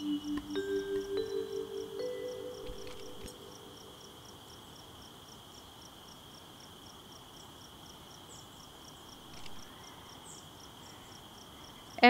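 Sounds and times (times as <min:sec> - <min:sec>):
high-pitched insect buzz: 0:00.0 - 0:04.3
insects chirping: 0:00.0 - 0:12.0.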